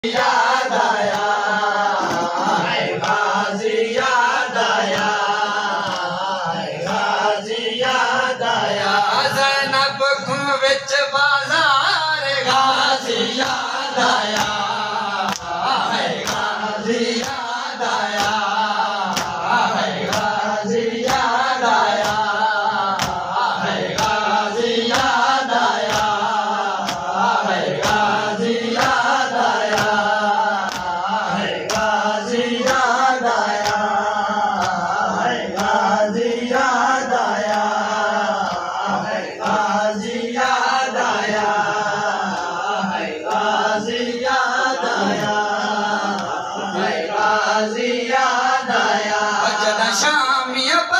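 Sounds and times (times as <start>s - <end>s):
men chanting together: 0.0s - 50.9s
hands slapping chests: 0.2s - 3.4s, 4.0s - 7.2s, 13.4s - 39.7s, 46.0s - 46.4s.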